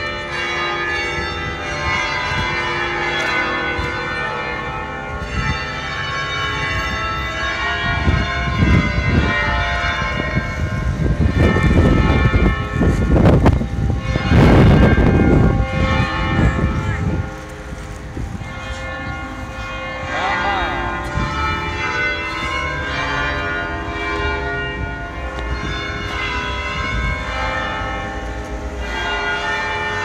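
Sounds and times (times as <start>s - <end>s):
church bells ringing: 0.0s - 30.0s.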